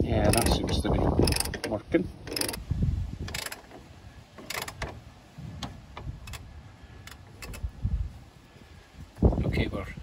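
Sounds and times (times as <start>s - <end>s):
ratchet clicking: 0.2s - 2.6s, 3.2s - 3.8s, 4.4s - 5.0s, 6.0s - 7.7s.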